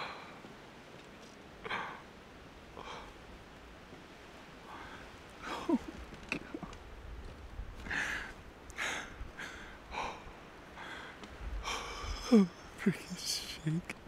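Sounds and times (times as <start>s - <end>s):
person breathing hard: 2.8s - 3.2s, 4.6s - 5.8s, 7.8s - 12.8s
person sighing: 4.7s - 6.5s, 11.6s - 12.8s.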